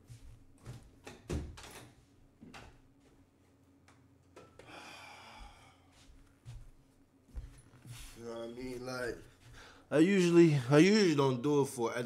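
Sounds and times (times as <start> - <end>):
breathy sigh: 4.5 - 5.9.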